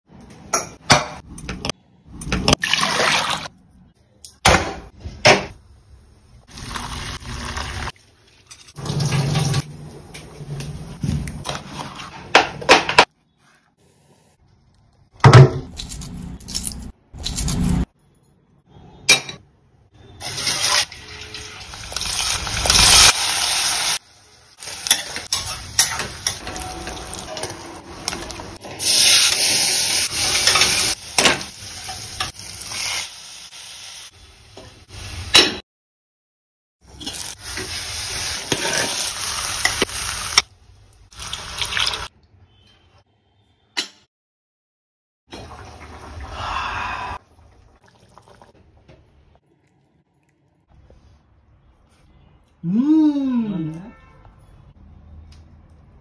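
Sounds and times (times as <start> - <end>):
oil sizzling in a pot: 20.2 - 27.5, 28.8 - 35.4, 36.9 - 40.4
liquid pouring and splashing: 47.2 - 50.6.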